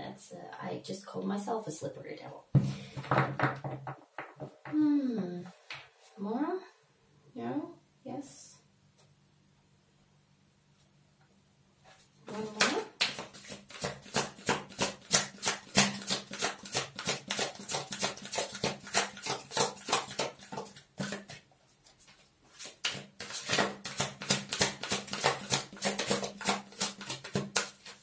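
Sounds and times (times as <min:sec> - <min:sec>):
cards being shuffled: 0:12.3 - 0:28.0.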